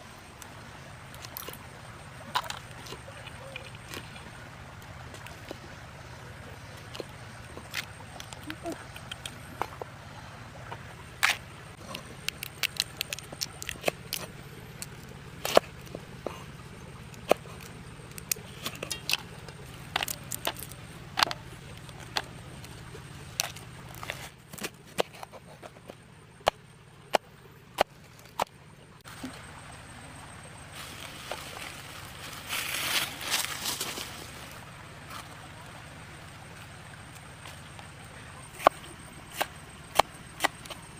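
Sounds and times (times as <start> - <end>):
faint low hum: 0.0 - 40.9
crab shells cracking by hand: 12.2 - 15.7.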